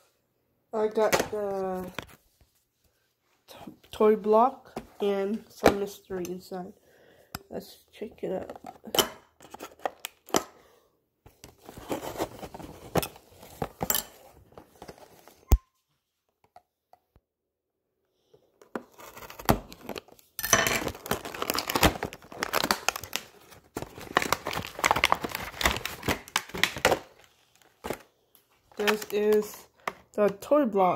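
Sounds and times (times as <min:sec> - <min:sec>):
packaging rustling and tearing: 0:11.5 - 0:15.5, 0:18.8 - 0:29.9.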